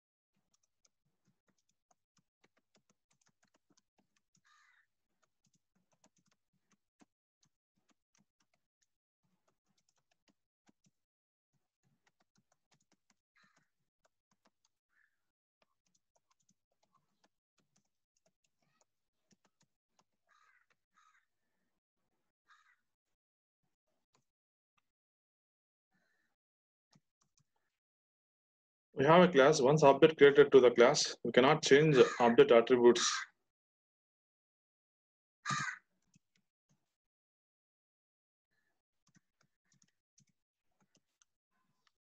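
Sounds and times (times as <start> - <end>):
keyboard typing: 0.4 - 4.5, 5.2 - 11.0, 15.6 - 20.1.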